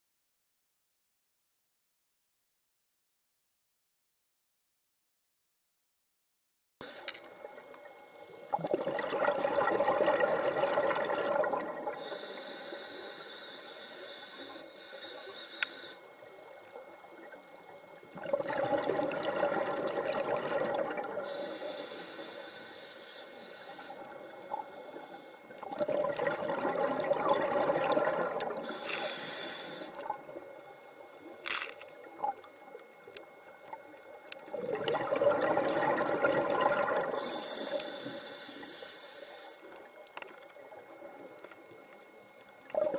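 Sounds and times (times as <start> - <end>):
regulator inhalation hiss: 6.8 - 7.3, 12.0 - 16.2, 21.2 - 25.6, 28.5 - 31.8, 37.0 - 39.8
regulator exhalation bubbling: 8.4 - 16.0, 18.2 - 22.7, 25.6 - 30.2, 34.5 - 39.5.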